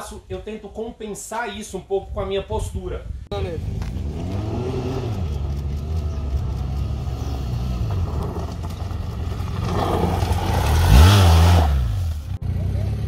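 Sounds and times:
motorcycle engine revving: 3.4s - 13.0s.

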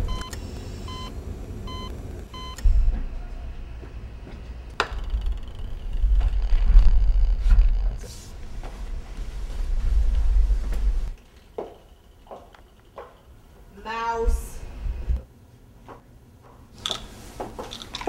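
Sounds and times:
heart-rate monitor beeping: 0.0s - 1.1s, 1.7s - 3.1s
low rumble: 1.2s - 11.2s.

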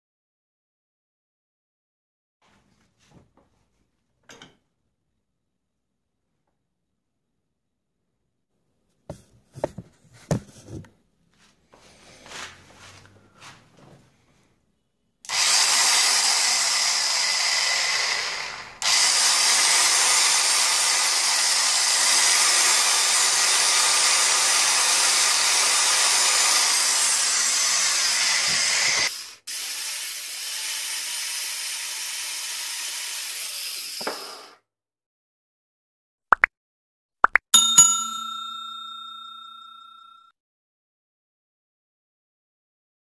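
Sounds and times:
electric drill running free: 15.3s - 34.6s.

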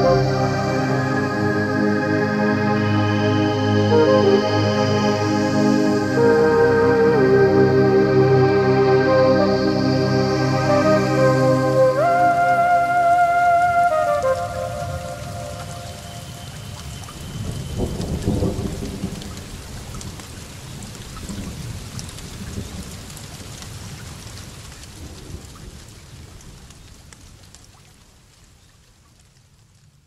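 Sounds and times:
steady rain: 0.0s - 30.0s
thunder rumbling: 13.8s - 20.4s.

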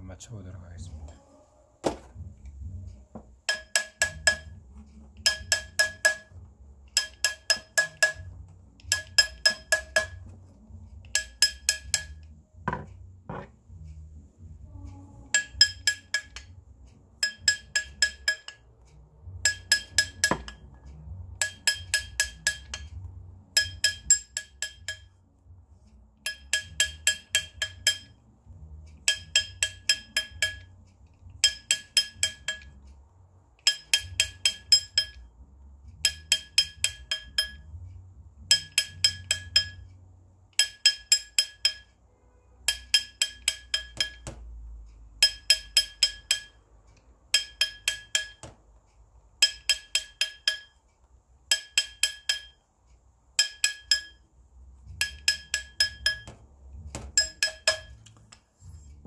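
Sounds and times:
small hammer tapping metal ring: 3.1s - 13.5s, 14.7s - 16.6s, 17.2s - 25.2s, 26.2s - 28.2s, 28.9s - 33.0s, 33.6s - 37.8s, 38.4s - 40.0s, 40.6s - 42.0s, 42.6s - 44.6s, 45.2s - 46.6s, 47.3s - 48.6s, 49.4s - 50.9s, 51.5s - 52.6s, 53.4s - 58.4s.

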